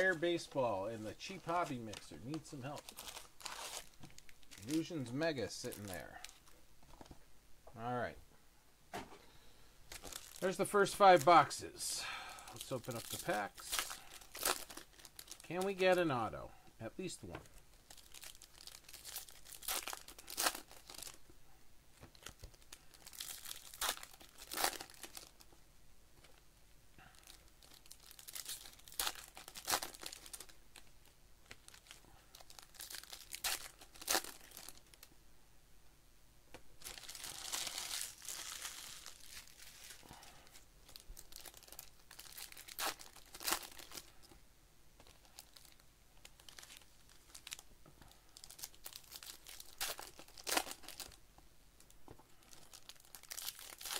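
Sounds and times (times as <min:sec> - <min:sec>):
plastic foil wrappers crinkling: 0:00.0 - 0:06.5, 0:09.9 - 0:11.6, 0:12.4 - 0:16.1, 0:17.0 - 0:21.2, 0:22.1 - 0:25.6, 0:27.0 - 0:35.1, 0:36.8 - 0:44.4, 0:45.0 - 0:51.2, 0:51.8 - 0:53.9
wrapper tearing open: 0:01.3 - 0:06.5, 0:09.9 - 0:11.3, 0:12.6 - 0:15.8, 0:17.8 - 0:21.2, 0:22.1 - 0:25.4, 0:27.2 - 0:30.8, 0:31.5 - 0:35.1, 0:36.8 - 0:40.0, 0:40.8 - 0:44.1, 0:45.0 - 0:47.6, 0:48.3 - 0:51.2, 0:52.4 - 0:53.9.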